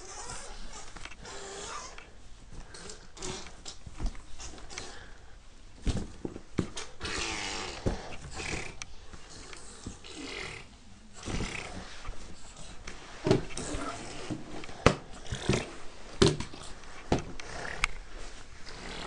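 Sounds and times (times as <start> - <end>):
rustling of nappies: 0.0 - 19.0.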